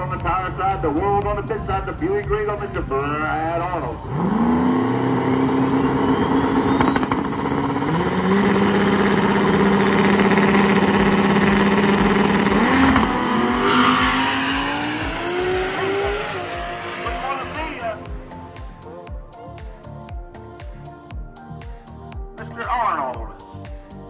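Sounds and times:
car engine at high revs: 0:04.0 - 0:17.8
thin whine: 0:04.2 - 0:17.8.

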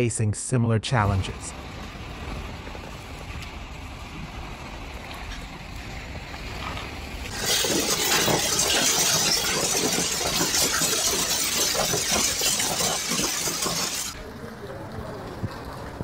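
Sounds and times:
low rumble of wind: 0:01.1 - 0:07.4, 0:14.2 - 0:16.0.

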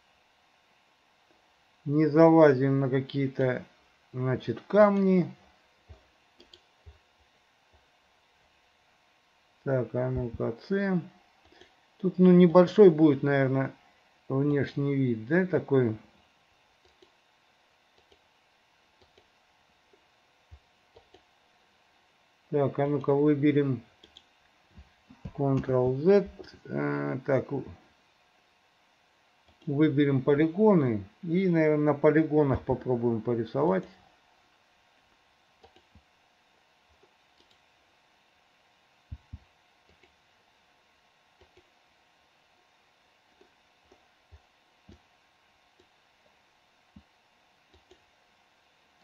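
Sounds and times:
computer mouse clicks: 0:05.9 - 0:07.0, 0:16.8 - 0:17.2, 0:17.9 - 0:18.3, 0:19.0 - 0:19.3, 0:19.9 - 0:21.3, 0:24.0 - 0:24.3, 0:29.4 - 0:29.7, 0:35.6 - 0:36.0, 0:36.9 - 0:37.7, 0:39.1 - 0:40.2, 0:41.4 - 0:41.7, 0:45.7 - 0:46.0, 0:47.7 - 0:48.1.

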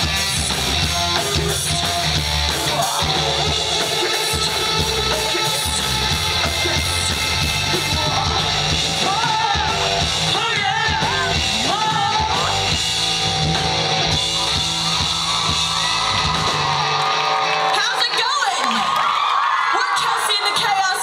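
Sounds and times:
live rock band: 0:00.0 - 0:21.0
woman singing: 0:07.7 - 0:12.6.

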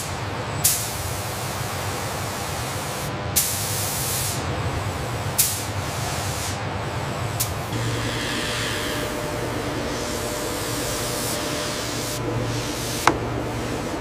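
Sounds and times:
compressed air hissing: 0:02.1 - 0:04.4, 0:05.0 - 0:14.0
low machinery hum: 0:05.9 - 0:14.0.

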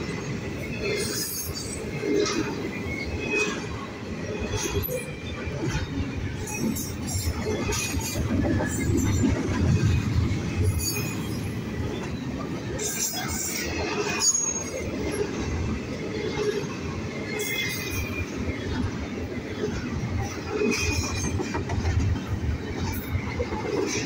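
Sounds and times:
train clanks: 0:00.0 - 0:24.0
train wheels rumbling on rail: 0:00.0 - 0:24.0
wheel squeals: 0:10.6 - 0:15.3.

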